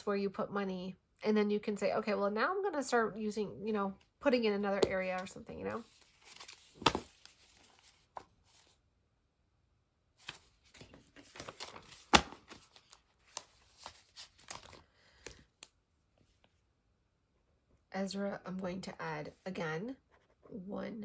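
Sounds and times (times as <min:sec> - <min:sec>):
banknotes rustling and flicking: 0:04.9 - 0:08.8, 0:10.2 - 0:15.6.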